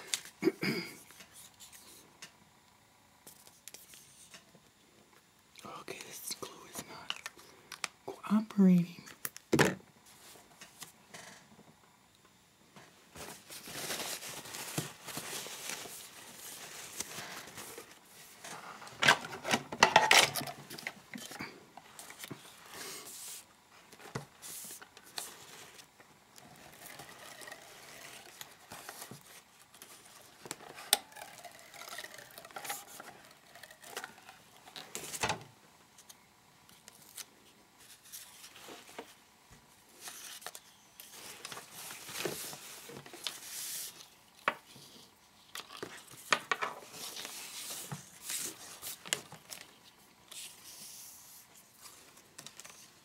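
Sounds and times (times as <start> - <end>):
paper and card rustling: 13.2 - 18.4, 22.0 - 35.4, 36.0 - 39.2, 39.9 - 44.2, 45.5 - 53.0.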